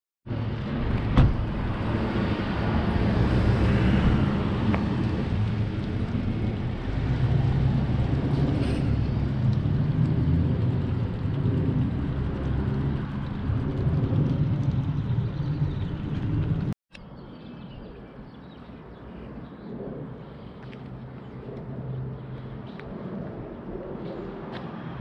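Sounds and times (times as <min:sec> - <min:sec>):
low street rumble: 0:00.3 - 0:25.0.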